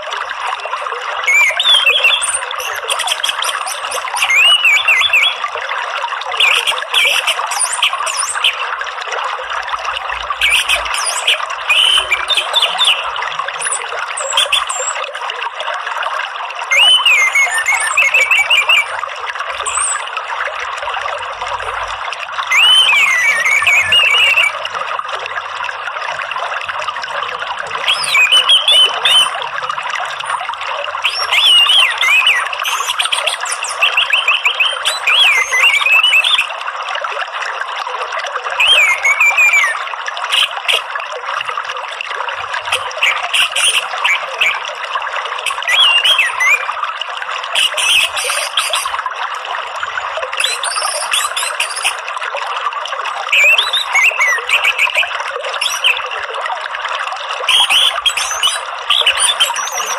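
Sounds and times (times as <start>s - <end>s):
flowing water: 0.0s - 59.9s
thrush whistled song: 0.6s - 8.7s, 10.4s - 15.1s, 16.7s - 20.2s, 22.5s - 24.7s, 27.3s - 36.5s, 38.6s - 40.8s, 42.7s - 44.7s, 45.4s - 46.8s, 47.6s - 49.0s, 49.8s - 52.0s, 53.2s - 56.2s, 57.5s - 59.9s.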